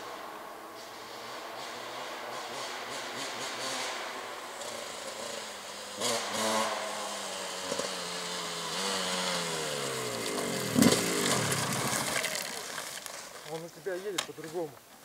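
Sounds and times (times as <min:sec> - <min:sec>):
motocross bike engine revving: 0:00.0 - 0:13.6.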